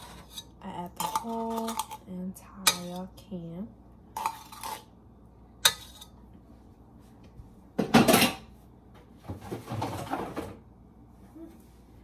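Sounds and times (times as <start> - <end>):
kitchen utensils clattering: 7.8 - 8.5, 9.4 - 10.6
knocking and rummaging: 9.2 - 10.6.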